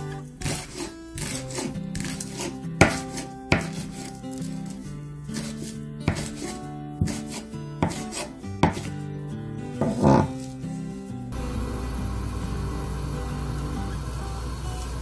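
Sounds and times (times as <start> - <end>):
knife slicing leaves: 0.0 - 9.0
knife knocking on cutting board: 3.6 - 3.8, 6.1 - 6.3, 8.6 - 8.9.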